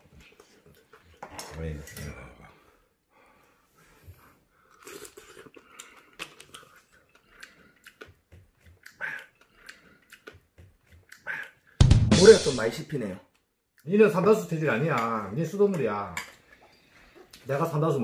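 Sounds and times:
chewing clams: 0:04.6 - 0:11.8.

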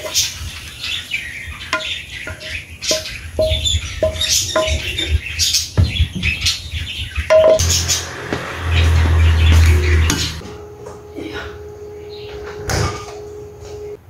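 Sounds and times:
birds chirping: 0:00.0 - 0:10.4, 0:11.6 - 0:14.0
wooden spatula knocking pan: 0:01.7 - 0:05.1.

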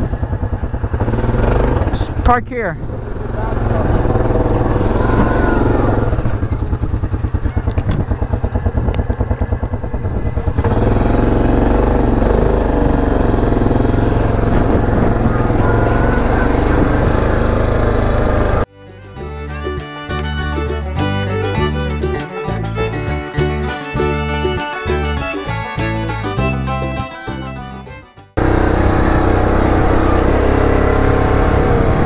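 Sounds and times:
quad bike engine: 0:00.0 - 0:18.7, 0:28.3 - 0:32.0.

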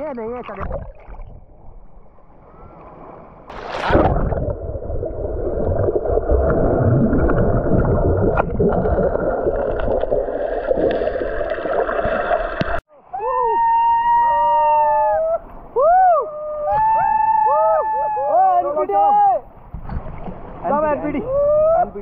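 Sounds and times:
water splash: 0:03.5 - 0:12.8.

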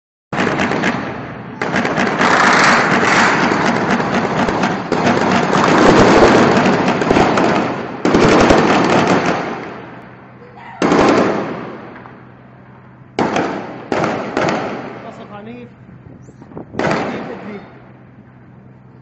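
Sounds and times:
shelling blasts: 0:00.3 - 0:18.9
heavy gunfire: 0:00.4 - 0:10.2, 0:10.8 - 0:12.3, 0:13.1 - 0:15.6, 0:16.7 - 0:17.8.

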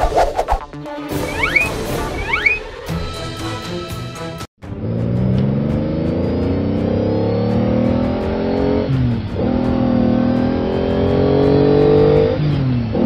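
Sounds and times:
car engine accelerating: 0:04.6 - 0:13.0.

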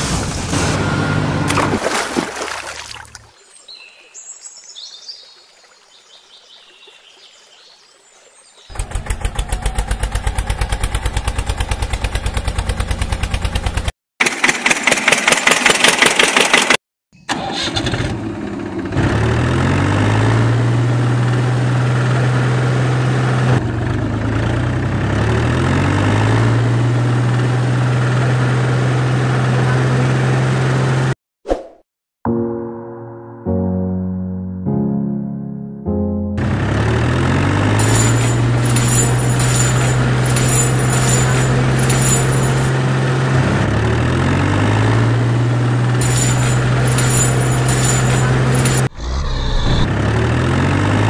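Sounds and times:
tractor engine chugging: 0:08.7 - 0:19.3, 0:36.4 - 0:43.1, 0:45.9 - 0:48.9.

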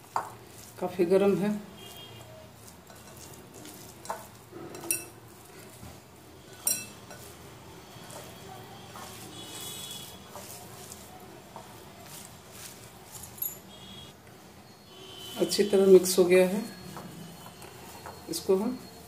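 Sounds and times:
hand squishing wet food: 0:00.0 - 0:04.5, 0:05.2 - 0:14.1
clinks against glass bowl: 0:06.6 - 0:07.3.

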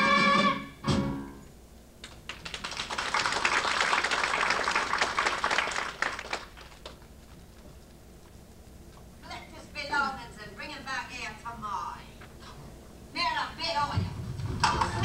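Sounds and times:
audience clapping: 0:02.0 - 0:07.7.

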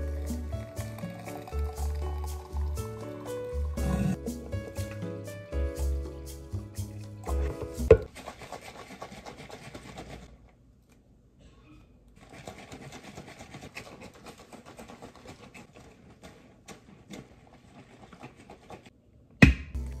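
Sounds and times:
shaker cup rattle and slosh: 0:00.0 - 0:05.1, 0:07.3 - 0:10.4, 0:12.2 - 0:18.9.

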